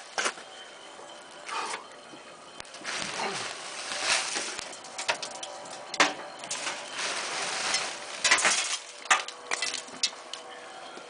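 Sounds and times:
sawdust crackling and hissing in fire: 0:02.6 - 0:05.8, 0:06.4 - 0:09.8.

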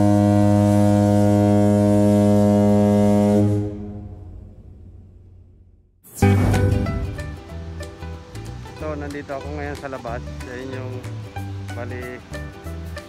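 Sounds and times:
ship's horn blast: 0:00.0 - 0:04.5.

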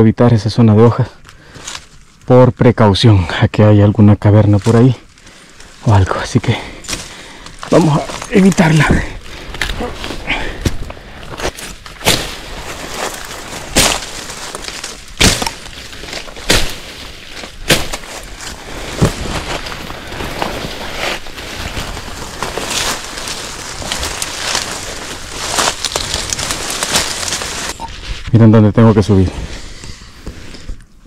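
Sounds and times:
twigs snapping underfoot: 0:01.2 - 0:02.3, 0:04.6 - 0:06.0, 0:06.6 - 0:27.7
leaf litter crunching and rustling: 0:04.4 - 0:28.2.

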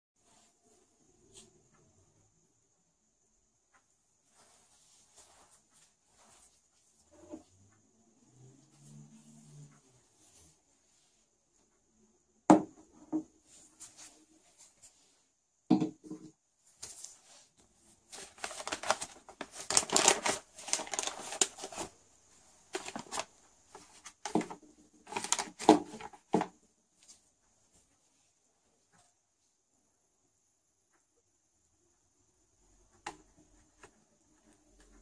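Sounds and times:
paper filter crinkling: 0:16.8 - 0:22.0, 0:22.6 - 0:26.4.

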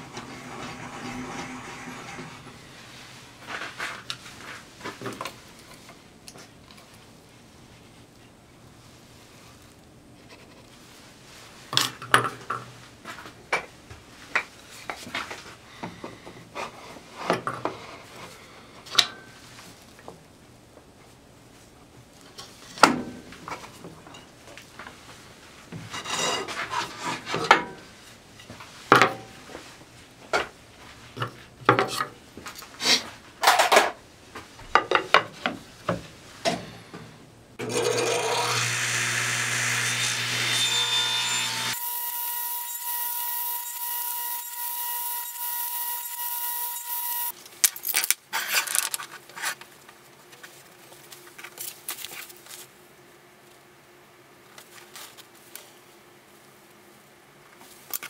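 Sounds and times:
table saw whining: 0:00.0 - 0:02.6, 0:37.6 - 0:47.3.

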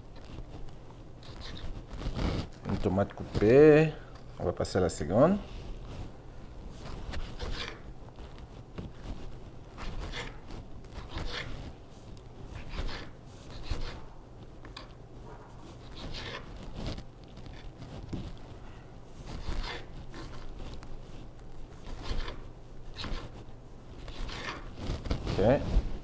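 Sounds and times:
knife slicing on cutting board: 0:11.0 - 0:11.6, 0:15.8 - 0:17.0, 0:19.3 - 0:20.6, 0:24.0 - 0:25.4.

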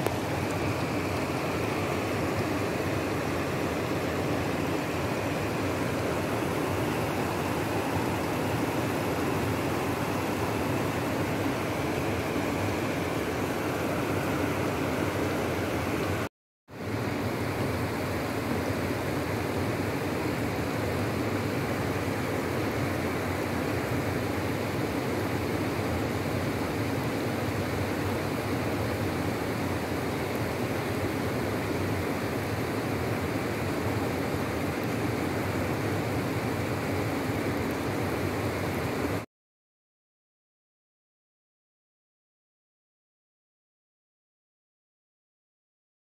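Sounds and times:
river water flowing over stones: 0:00.0 - 0:39.2.

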